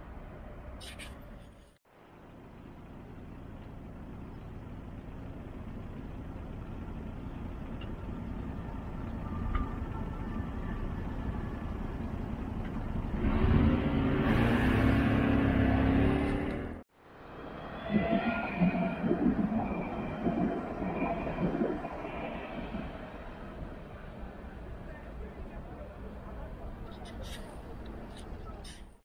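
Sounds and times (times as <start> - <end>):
tram running noise: 2.2 - 13.7.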